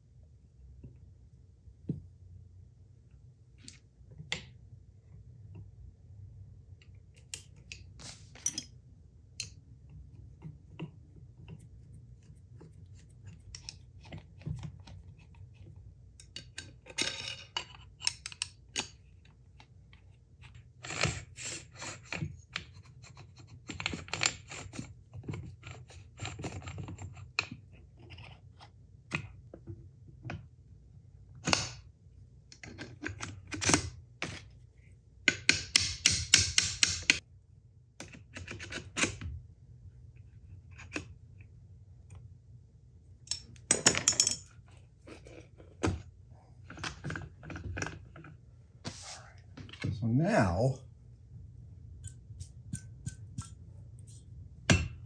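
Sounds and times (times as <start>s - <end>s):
low steady hum: 37.1s - 55.0s.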